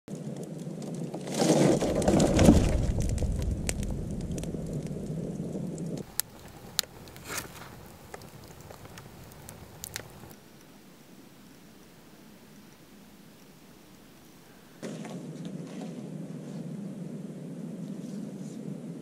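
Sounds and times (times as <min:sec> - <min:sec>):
campfire crackling and popping: 0:00.1 - 0:16.4.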